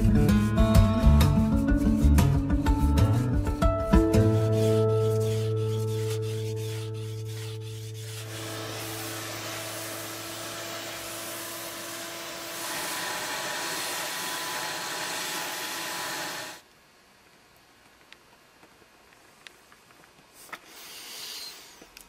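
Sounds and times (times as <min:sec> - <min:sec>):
acoustic guitar music: 0:00.0 - 0:06.5
power sander hissing: 0:07.7 - 0:16.6.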